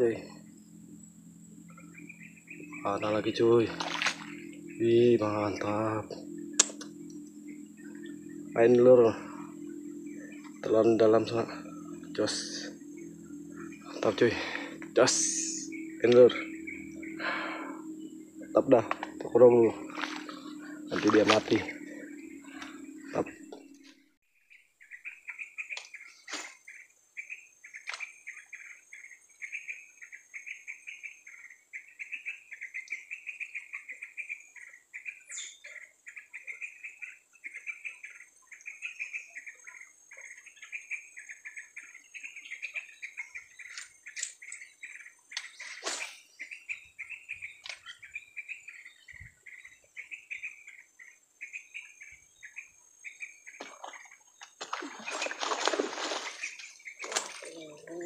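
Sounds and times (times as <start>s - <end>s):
high-pitched whine: 0.0s - 24.2s
rhythmic chirping: 0.0s - 24.2s
sharp clicks: 6.6s - 7.3s.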